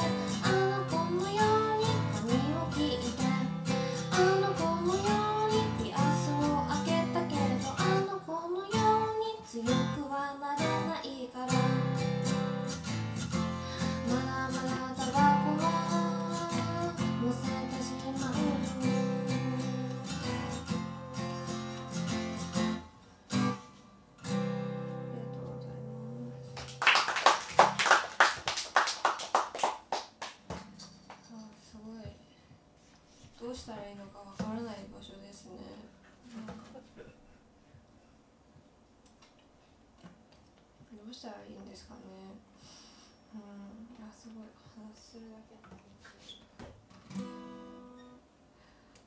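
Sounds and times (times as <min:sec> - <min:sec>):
acoustic guitar strumming: 0:00.0 - 0:10.0, 0:11.5 - 0:26.8, 0:46.9 - 0:48.2
woman singing: 0:00.0 - 0:12.1, 0:13.8 - 0:21.8
people clapping: 0:26.4 - 0:31.3.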